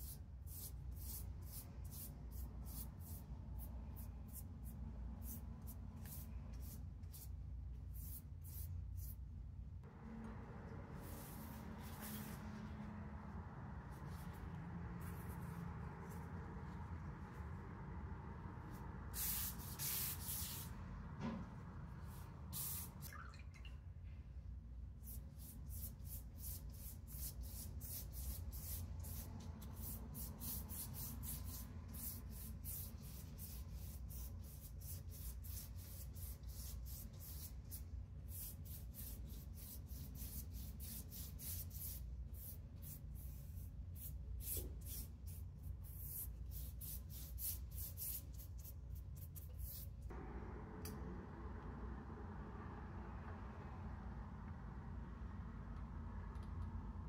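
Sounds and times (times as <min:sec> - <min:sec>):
pastry brush swishing: 0:10.8 - 0:17.8, 0:18.6 - 0:20.9.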